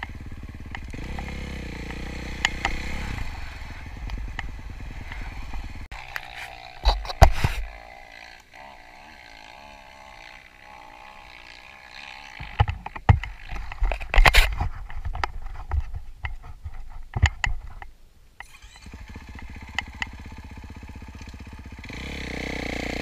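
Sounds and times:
sharp knocks and clatter: 0.0s - 3.1s, 12.3s - 17.9s
dirt bike engine idling: 0.0s - 14.4s, 18.4s - 23.0s.

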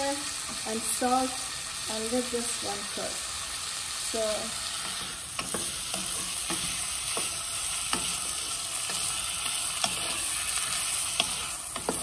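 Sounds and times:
beans sizzling in oil: 0.0s - 12.0s
wooden spatula scraping pan: 4.6s - 12.0s.

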